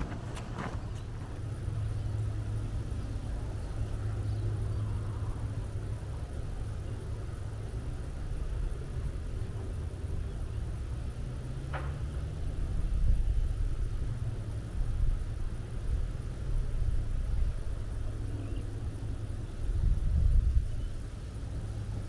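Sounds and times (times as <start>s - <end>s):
wind buffeting microphone: 0.0s - 4.2s, 14.8s - 22.0s.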